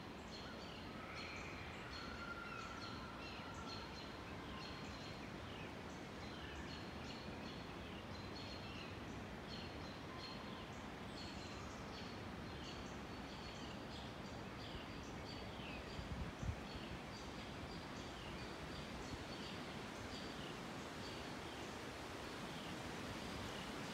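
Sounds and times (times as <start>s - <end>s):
outdoor hiss: 7.2s - 23.9s.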